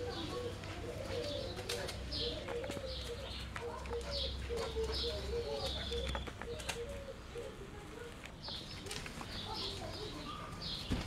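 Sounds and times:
puppies scuffing on tiled floor: 0:00.0 - 0:07.0, 0:07.6 - 0:11.0
pigeon cooing: 0:00.0 - 0:08.1
birds chirping: 0:00.0 - 0:11.0.

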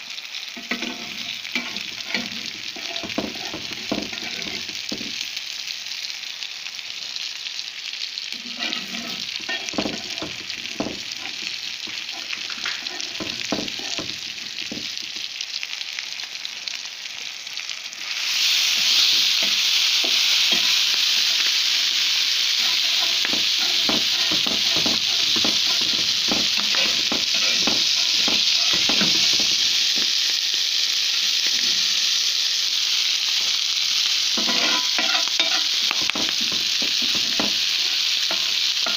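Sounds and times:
meat sizzling in oil: 0:00.0 - 0:38.9
metal spatula scraping pan: 0:00.6 - 0:05.2, 0:08.4 - 0:15.0, 0:22.6 - 0:30.1, 0:34.4 - 0:38.9.

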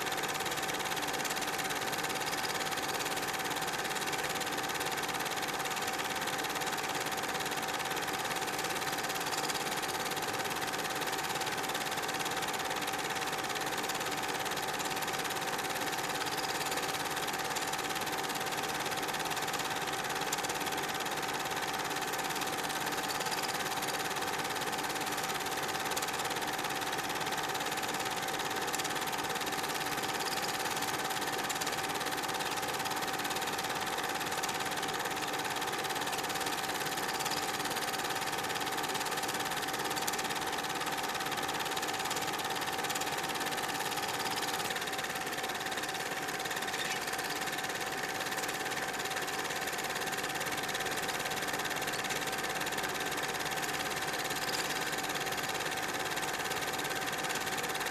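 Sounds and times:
film projector whirring and clattering: 0:00.0 - 0:57.9.

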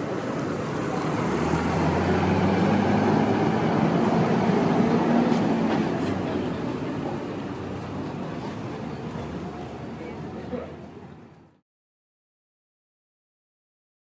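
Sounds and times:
vehicle engine hum: 0:00.0 - 0:11.6.

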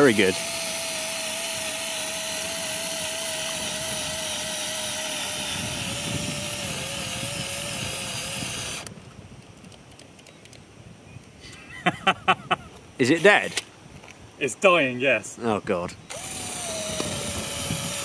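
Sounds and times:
cordless drill whining: 0:00.0 - 0:08.9, 0:16.1 - 0:18.0
eraser wheel grinding paintwork: 0:00.0 - 0:08.9, 0:16.1 - 0:18.0.

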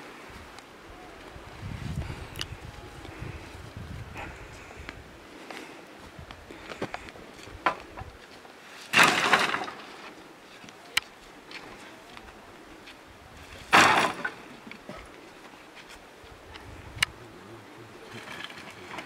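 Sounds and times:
firewood crashing onto woodpile: 0:08.9 - 0:10.1, 0:13.6 - 0:14.8.

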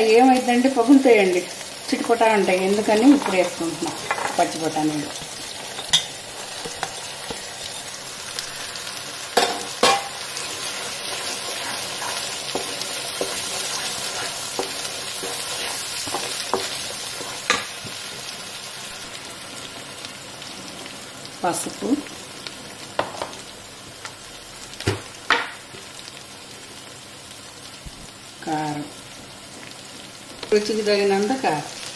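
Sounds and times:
food sizzling in oil: 0:00.0 - 0:31.9
spoon scraping and knocking pan: 0:03.1 - 0:08.0, 0:09.4 - 0:18.3.

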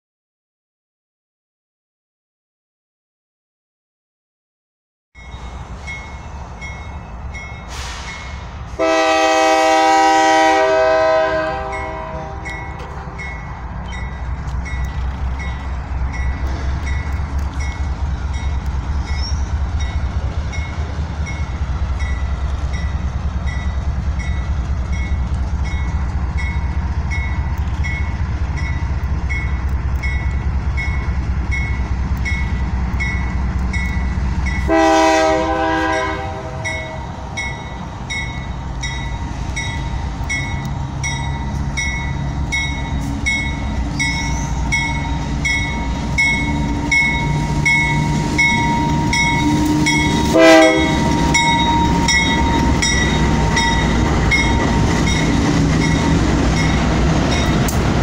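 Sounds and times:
locomotive engine rumble: 0:05.2 - 0:58.0
locomotive air horn blast: 0:08.8 - 0:12.5, 0:34.7 - 0:37.3, 0:48.1 - 0:54.0.

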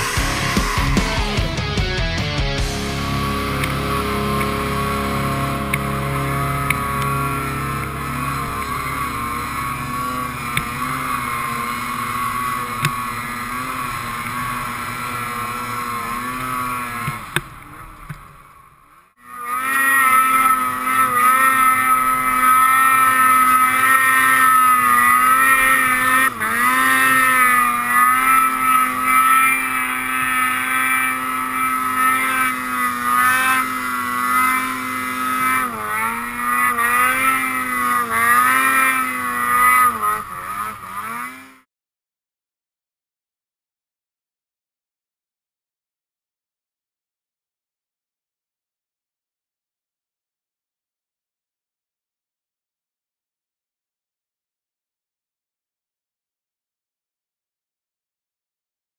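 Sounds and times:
snowmobile engine running: 0:00.0 - 0:41.7.

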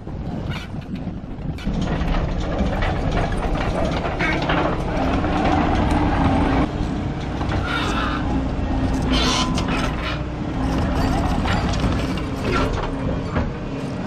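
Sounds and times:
diesel engine under load: 0:00.0 - 0:14.0
metal clanks: 0:00.4 - 0:13.6.

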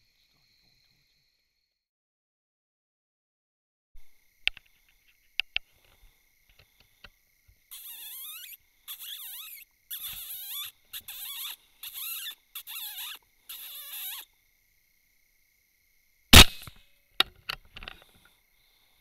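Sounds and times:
predator call distress squeaks: 0:07.7 - 0:14.3.

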